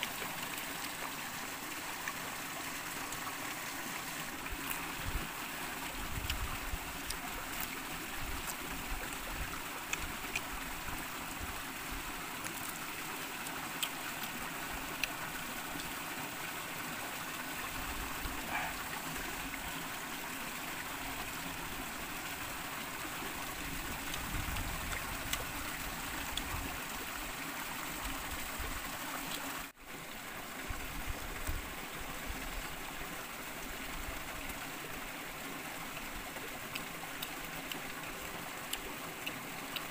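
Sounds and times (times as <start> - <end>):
stream flowing over rocks: 0.0 - 39.9
mouth sounds of eating: 18.2 - 19.5, 36.4 - 38.1.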